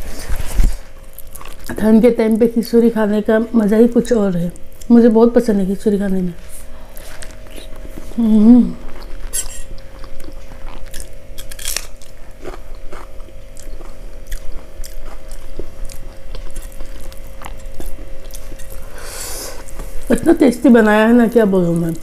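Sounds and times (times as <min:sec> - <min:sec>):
faint steady hum: 0:00.0 - 0:22.0
chewing and mouth smacks: 0:08.9 - 0:18.8.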